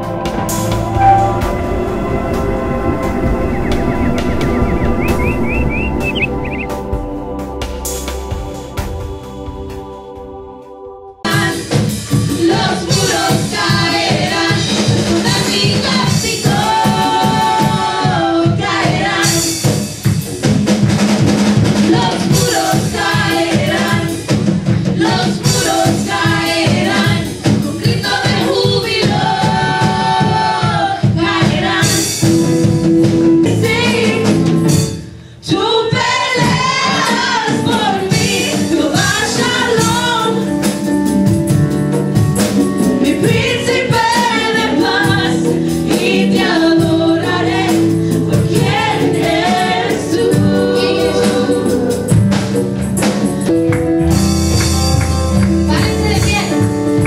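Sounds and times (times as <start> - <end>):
women singing worship song: 9.5 - 19.7, 21.8 - 32.4, 35.4 - 40.5, 43.0 - 52.3
band with drums: 11.3 - 35.2, 35.9 - 57.0.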